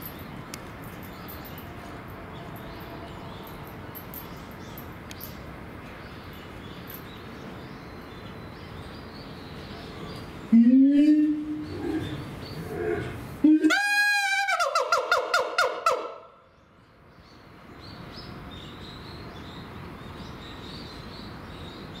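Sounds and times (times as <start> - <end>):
siamang whooping call: 13.4 - 16.1.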